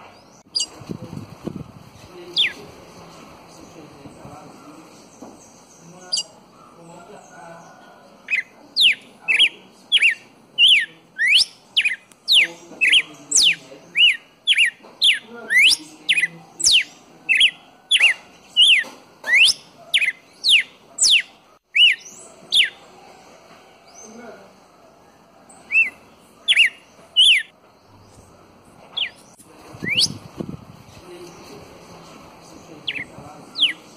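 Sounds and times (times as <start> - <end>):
bird singing whistled notes: 8.3 - 22.8, 25.6 - 28.3, 29.0 - 30.3, 32.8 - 33.9.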